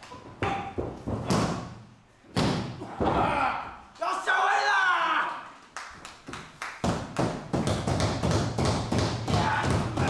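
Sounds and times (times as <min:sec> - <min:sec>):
crowd clapping: 0:05.7 - 0:07.3.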